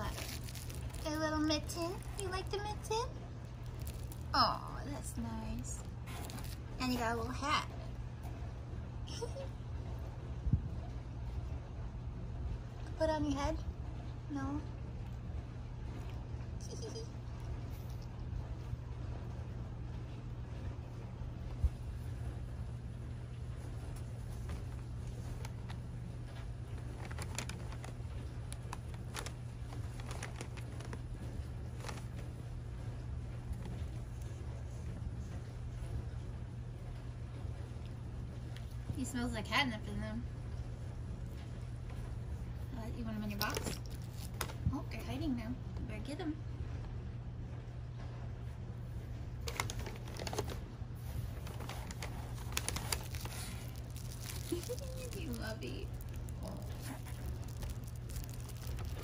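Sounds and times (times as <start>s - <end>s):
paper crinkling and rustling: 0.0s - 2.6s, 3.6s - 4.6s, 6.0s - 7.0s, 24.2s - 32.3s, 43.4s - 44.7s, 49.4s - 59.0s
low hum: 0.0s - 59.0s.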